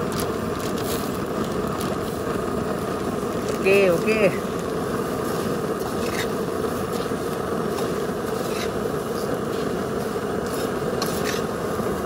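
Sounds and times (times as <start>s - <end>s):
steady rushing noise: 0.0s - 12.0s
spatula scraping metal pan: 5.8s - 7.1s, 7.7s - 9.7s, 10.4s - 11.6s.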